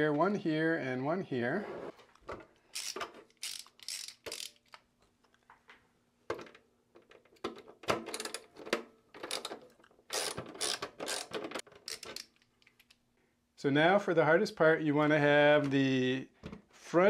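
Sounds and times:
ratcheting screwdriver clicks: 2.7 - 4.8, 10.1 - 13.0.

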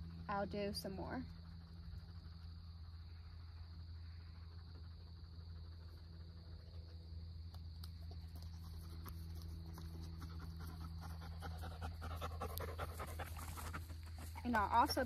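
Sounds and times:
steady low hum: 0.0 - 15.0
dog panting: 8.0 - 15.0.

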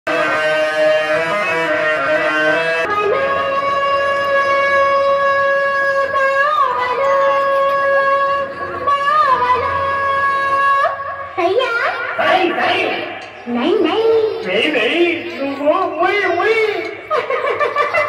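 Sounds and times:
reedy wind instrument melody: 0.1 - 10.7.

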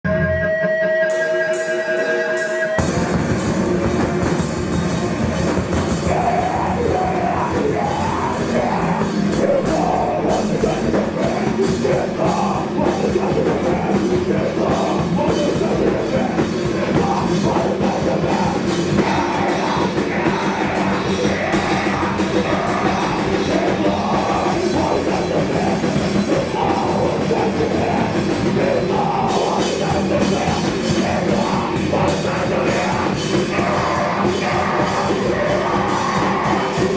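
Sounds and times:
bass guitar: 0.0 - 36.9
drum kit: 0.0 - 36.9
electric guitar: 0.0 - 36.9
person singing: 5.7 - 36.9.

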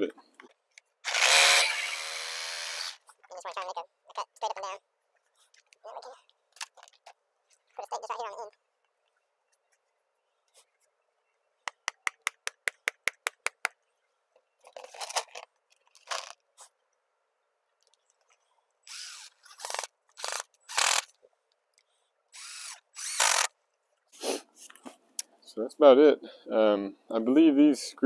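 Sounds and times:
cordless drill driving screws: 1.0 - 3.0, 18.8 - 21.2, 22.3 - 23.5.

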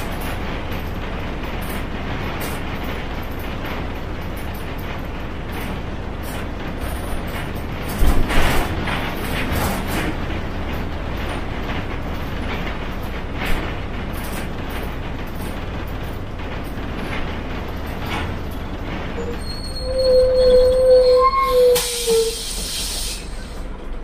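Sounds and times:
bus body rattles: 0.0 - 24.0
high brake squeal: 19.2 - 23.6.

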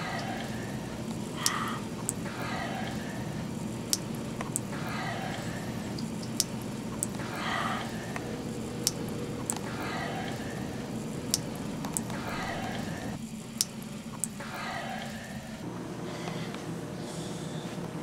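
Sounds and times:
person breathing heavily in sleep: 0.0 - 3.5, 7.2 - 8.3, 12.1 - 13.2, 14.4 - 17.8
low room hum: 0.0 - 18.0.

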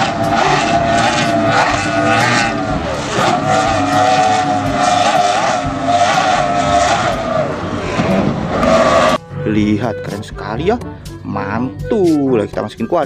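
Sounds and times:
powerboat engines at high speed: 0.0 - 9.4.

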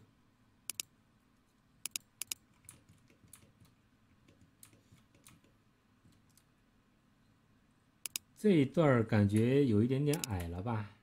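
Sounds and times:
mouse and keyboard clicks: 0.7 - 0.9, 1.8 - 6.5, 8.0 - 8.3, 10.1 - 10.6.

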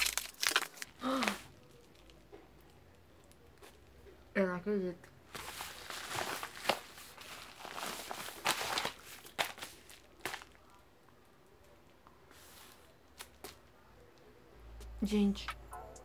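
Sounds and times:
paper mailer crinkling and tearing: 0.0 - 1.6, 5.4 - 10.6.

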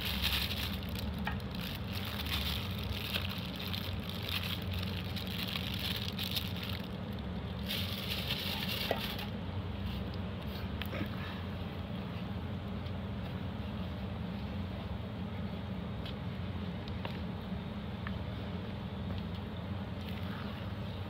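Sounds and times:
plastic rustling: 0.0 - 10.1
steady low hum: 0.0 - 21.0.

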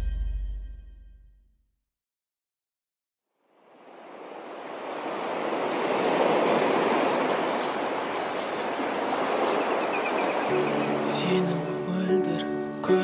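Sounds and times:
waves washing on shore: 3.6 - 12.0.

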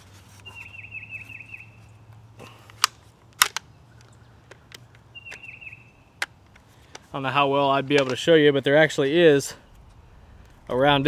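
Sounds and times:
pistol action clacking: 2.7 - 5.6.

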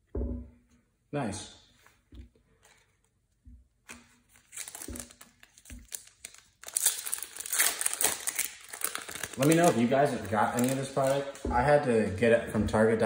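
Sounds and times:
foil wrapper tearing and crinkling: 3.9 - 11.4.

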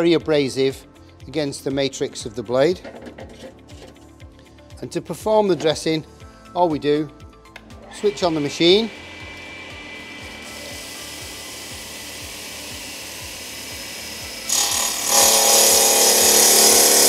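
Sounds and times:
wet saw blade spinning: 7.8 - 17.0
saw grinding stone: 8.0 - 17.0.

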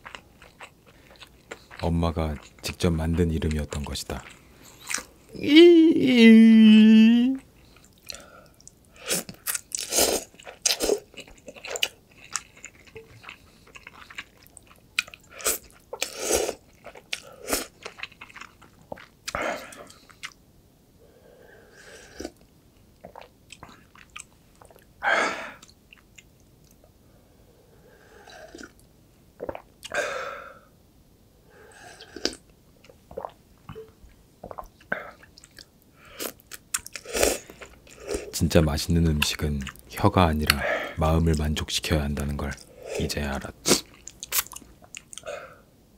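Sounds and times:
close-up chewing and crunching: 0.0 - 5.2, 7.6 - 20.4, 22.1 - 24.9, 34.5 - 38.4, 43.7 - 45.3.

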